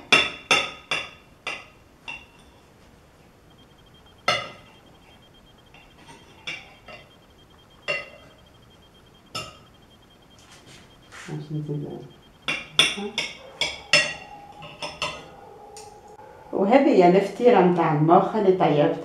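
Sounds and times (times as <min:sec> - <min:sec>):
cutlery clinking on a plate: 0:12.5 - 0:15.3.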